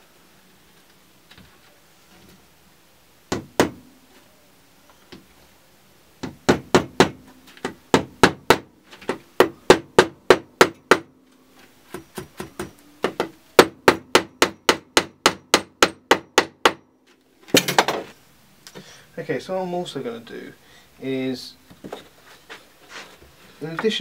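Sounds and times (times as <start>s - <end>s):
hammer striking nails: 3.3s - 3.8s, 6.2s - 11.1s, 11.9s - 16.9s.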